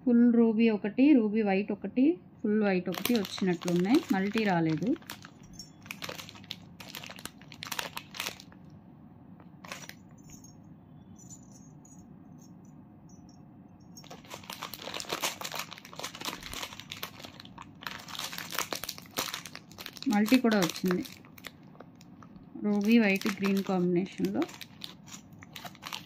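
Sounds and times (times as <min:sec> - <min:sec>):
wrapping crinkling and rustling: 0:02.9 - 0:08.6, 0:09.6 - 0:10.5, 0:14.0 - 0:26.0.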